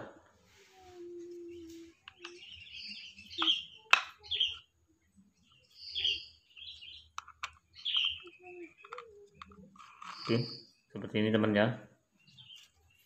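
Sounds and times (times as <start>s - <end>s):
small birds chirping: 0.4s - 13.0s
sharp plastic clicks: 7.1s - 10.4s.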